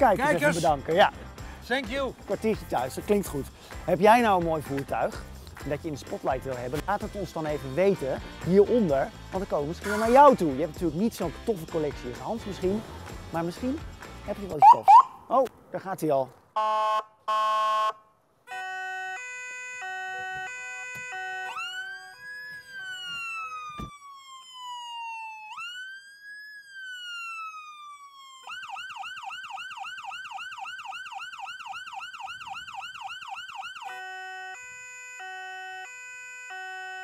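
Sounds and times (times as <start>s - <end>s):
police siren: 14.6s - 15.2s, 16.6s - 37.0s.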